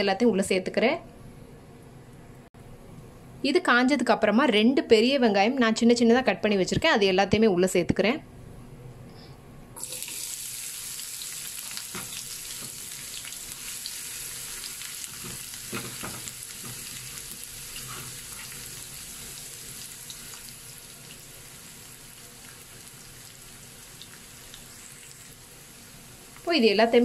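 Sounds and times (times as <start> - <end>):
onions sizzling in oil: 9.8 - 27.0.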